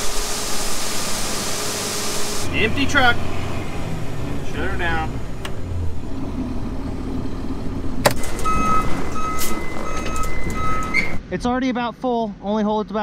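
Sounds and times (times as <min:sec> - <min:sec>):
steady high tone: 0:00.0 - 0:06.1
vehicle engine running low: 0:00.0 - 0:11.4
electronic warning beeps: 0:08.2 - 0:11.2.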